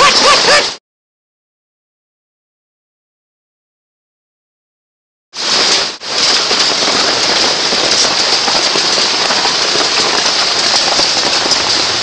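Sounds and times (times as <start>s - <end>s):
hail and heavy rain: 0.0s - 0.8s, 5.4s - 12.0s.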